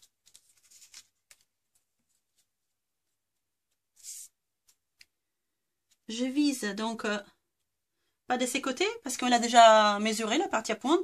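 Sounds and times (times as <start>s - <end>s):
paper strip brushing: 0.0s - 2.5s, 3.7s - 5.1s
paper rustling and tapping: 0.0s - 4.0s.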